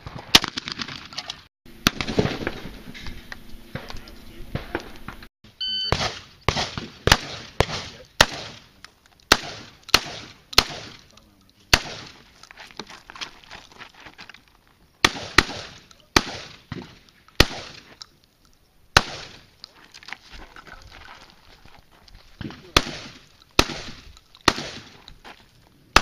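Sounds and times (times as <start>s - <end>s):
shotgun firing: 0.3s - 1.1s, 1.8s - 2.7s, 5.9s - 8.7s, 9.3s - 11.1s, 11.7s - 12.2s, 15.0s - 17.9s, 19.0s - 19.5s, 22.4s - 25.0s
shot timer beep: 5.6s - 6.0s.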